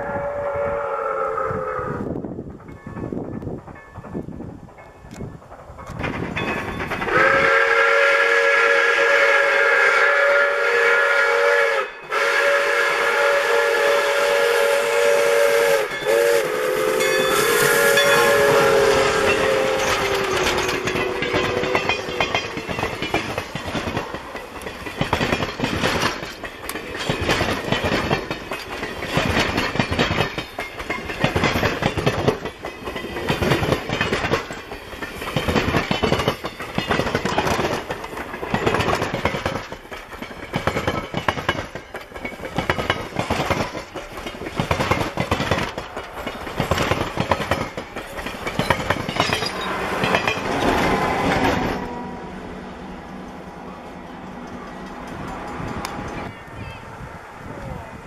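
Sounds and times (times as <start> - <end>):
steam locomotive chime whistle: 0.0 - 3.2, 6.4 - 23.2
train wheels clicking over rail joints: 2.1 - 52.0, 52.8 - 56.6.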